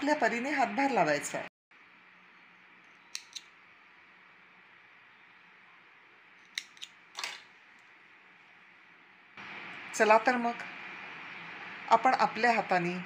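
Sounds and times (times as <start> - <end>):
metal safety pin clicking: 3.1 - 3.5, 6.5 - 6.9.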